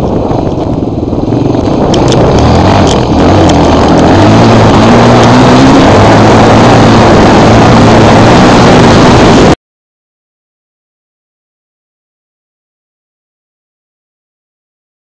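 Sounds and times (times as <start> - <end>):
off-road motorcycle engine: 0.0 - 9.6.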